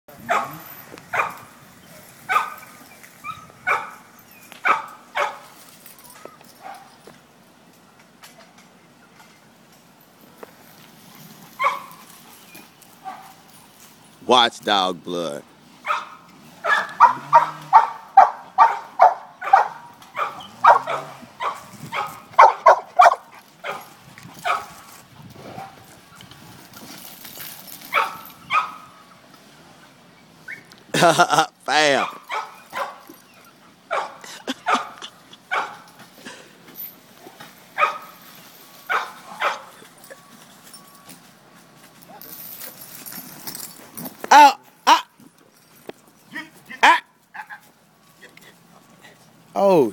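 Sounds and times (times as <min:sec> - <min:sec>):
dog barking: 0:00.3 - 0:01.4, 0:02.3 - 0:02.6, 0:03.3 - 0:04.0, 0:04.6 - 0:05.4, 0:11.6 - 0:12.0, 0:15.8 - 0:24.7, 0:27.9 - 0:28.9, 0:32.0 - 0:33.0, 0:33.9 - 0:35.9, 0:37.8 - 0:38.1, 0:38.9 - 0:39.7.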